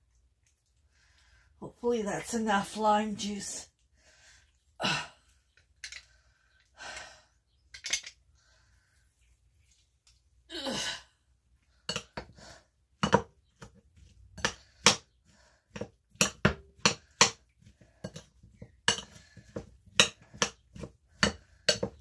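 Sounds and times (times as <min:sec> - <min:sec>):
fork scraping a bowl: 0:16.8 - 0:22.0.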